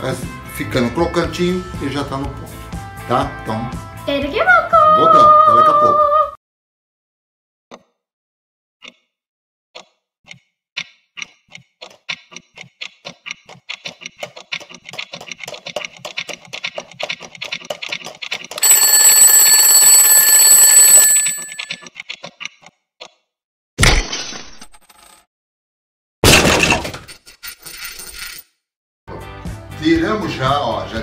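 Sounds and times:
alarm bell ringing: 0:18.6 - 0:21.8.

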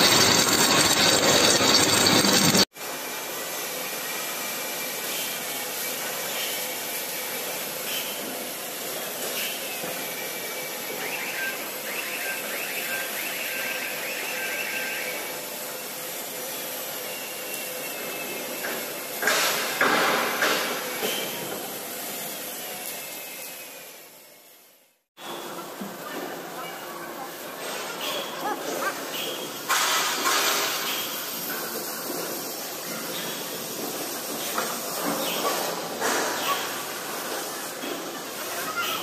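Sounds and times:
steel-on-steel clanks: 0:00.0 - 0:02.7, 0:27.6 - 0:38.5
machinery hiss and hum: 0:00.0 - 0:39.0.

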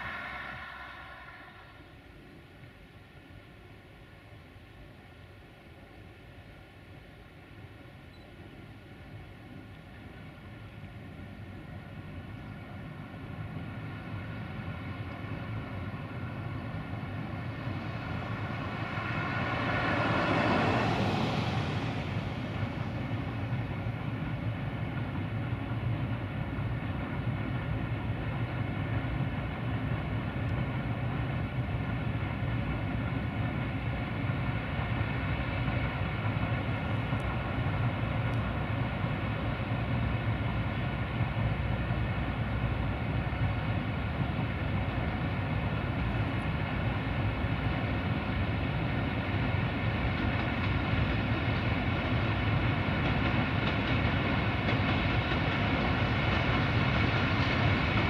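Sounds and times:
car passing: 0:00.0 - 0:02.2, 0:17.3 - 0:23.5
diesel locomotive engine running: 0:00.0 - 0:58.0.

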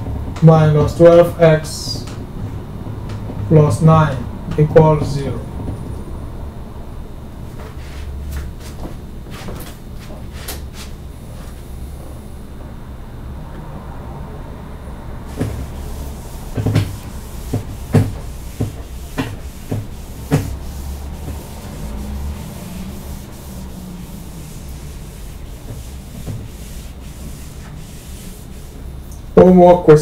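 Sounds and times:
steady low hum: 0:00.0 - 0:30.0
whiteboard eraser rubbing: 0:15.3 - 0:28.9.

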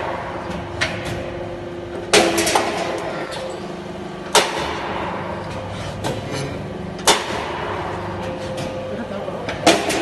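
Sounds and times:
steady machine hum: 0:00.0 - 0:10.0
punching machine metal bangs: 0:02.0 - 0:03.1, 0:04.3 - 0:05.4, 0:07.0 - 0:08.2, 0:09.6 - 0:10.0.

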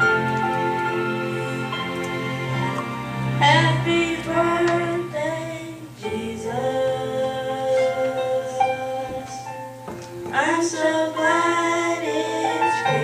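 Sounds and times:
keyboard accompaniment: 0:00.0 - 0:13.0
gospel singers: 0:03.4 - 0:13.0.

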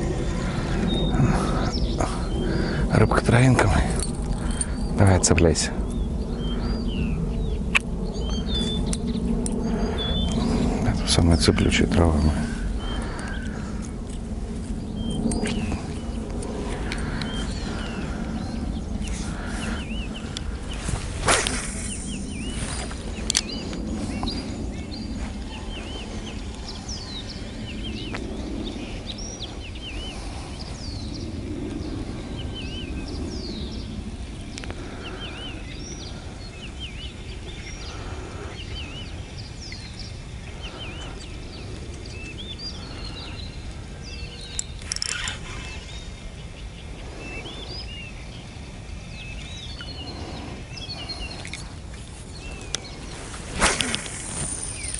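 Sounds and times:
low background rumble: 0:00.0 - 0:54.9
songbirds chirping and singing: 0:00.0 - 0:54.9
rustle: 0:11.4 - 0:54.9.

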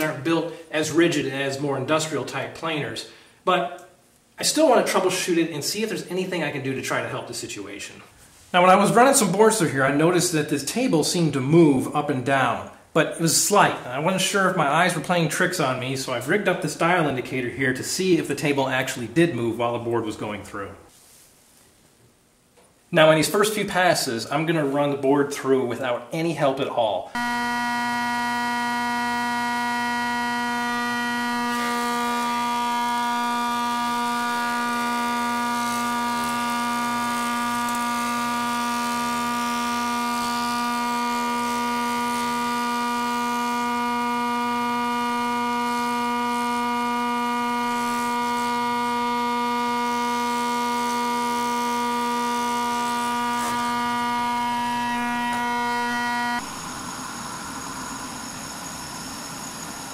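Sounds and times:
planer whining: 0:00.0 - 0:00.6, 0:27.1 - 0:59.9.

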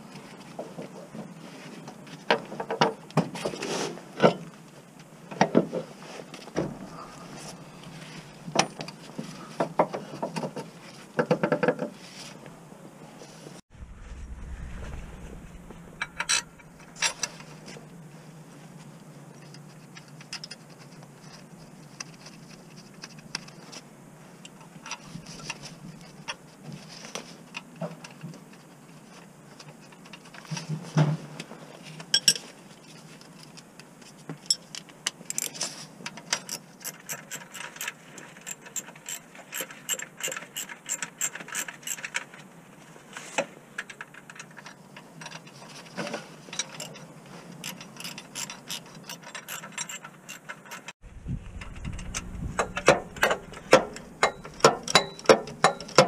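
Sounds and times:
metal tools clinking: 0:52.6 - 0:56.0.

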